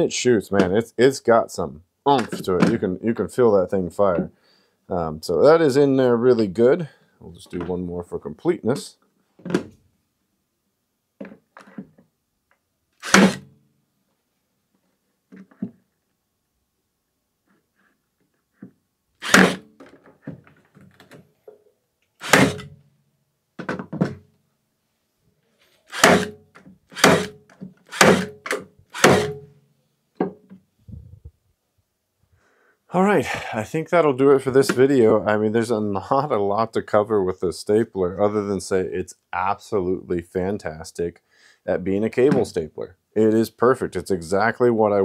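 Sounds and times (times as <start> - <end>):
cable stapler firing: 26.0 - 26.3, 27.0 - 27.4, 28.0 - 29.4.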